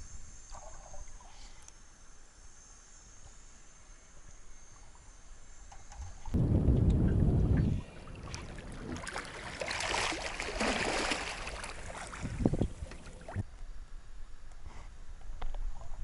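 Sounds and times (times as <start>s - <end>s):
water splashing and sloshing: 5.9s - 13.5s.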